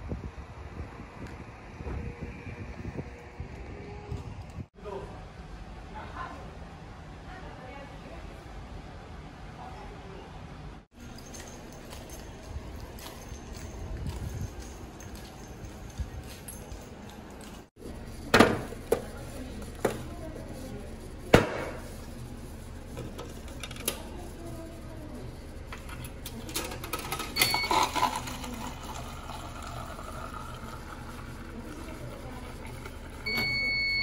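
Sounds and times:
short beep: 0:27.4 - 0:28.0, 0:33.3 - 0:34.0
drink pouring into plastic cup: 0:27.6 - 0:33.2.

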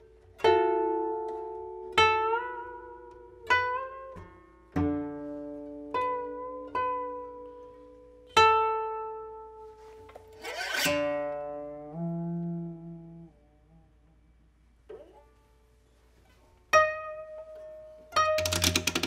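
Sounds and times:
koto plucked notes: 0:00.0 - 0:19.0
brief scraping noise: 0:09.8 - 0:11.0.

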